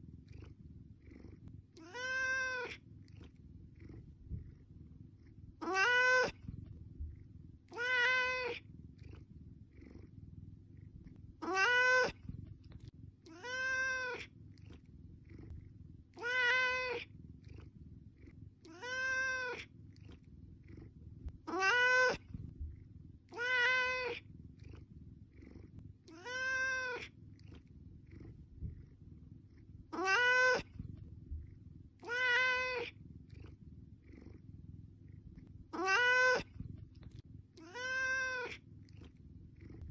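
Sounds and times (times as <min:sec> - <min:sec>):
faint low hum: 0:00.0 - 0:39.9
cat meowing: 0:01.8 - 0:02.8, 0:05.6 - 0:06.5, 0:07.7 - 0:08.6, 0:11.4 - 0:12.3, 0:13.3 - 0:14.3, 0:16.2 - 0:17.1, 0:18.6 - 0:19.7, 0:21.4 - 0:22.3, 0:23.3 - 0:24.2, 0:26.1 - 0:27.1, 0:29.9 - 0:30.8, 0:32.0 - 0:33.0, 0:35.7 - 0:36.6, 0:37.6 - 0:38.6.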